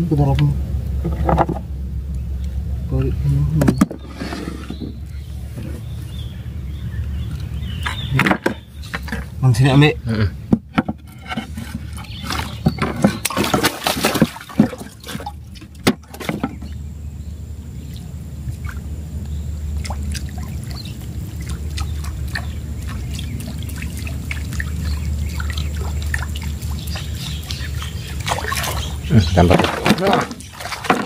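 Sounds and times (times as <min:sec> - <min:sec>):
water trickling: 0:04.7 - 0:09.7, 0:11.7 - 0:31.0.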